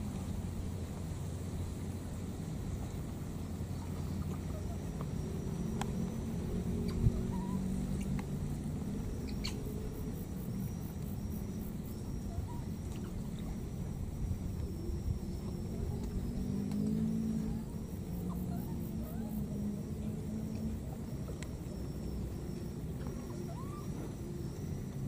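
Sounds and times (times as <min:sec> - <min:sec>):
steady low rumble: 0:00.0 - 0:25.0
thin high steady tone: 0:00.0 - 0:25.0
faint clicks: 0:03.9 - 0:06.1, 0:20.5 - 0:21.7.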